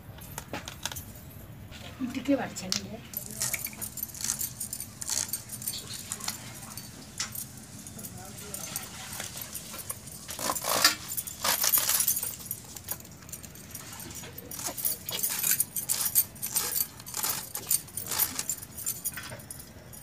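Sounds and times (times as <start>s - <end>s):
light jingling: 3.1s - 20.0s.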